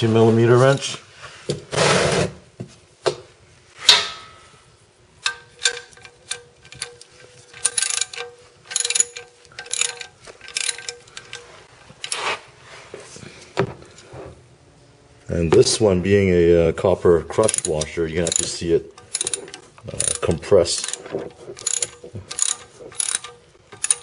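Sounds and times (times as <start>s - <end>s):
ratchet wrench clicking: 5.2s - 12.2s, 17.4s - 24.0s.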